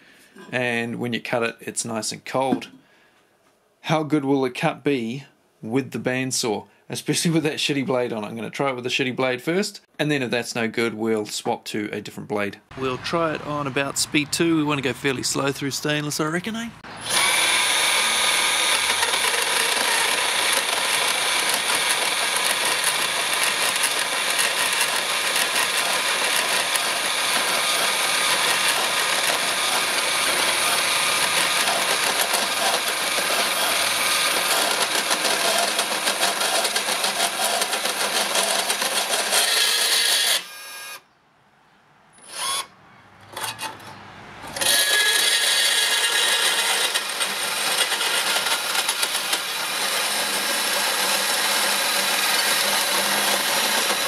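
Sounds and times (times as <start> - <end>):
band saw cutting steel tube: 12.8 - 40.6, 44.5 - 54.0.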